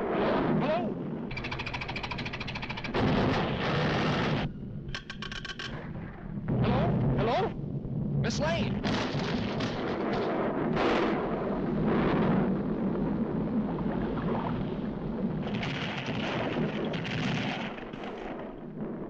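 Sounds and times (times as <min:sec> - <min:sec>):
deep rumble: 0:00.0 - 0:19.0
cartoon volcano blasts: 0:02.9 - 0:04.5, 0:08.7 - 0:19.0.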